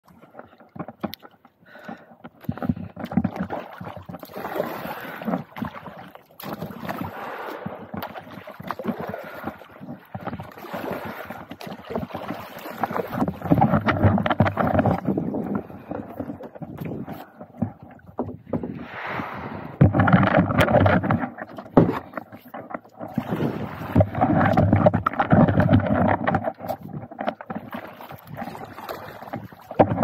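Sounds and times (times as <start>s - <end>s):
water slapping a kayak hull: 0.0s - 30.0s
wind on microphone: 13.0s - 22.0s.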